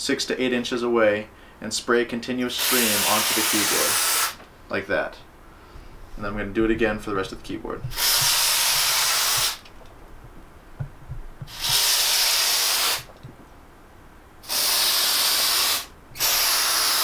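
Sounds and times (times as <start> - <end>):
aerosol can spraying hiss: 2.6 - 4.4, 7.9 - 9.6, 11.4 - 13.2, 14.4 - 17.0.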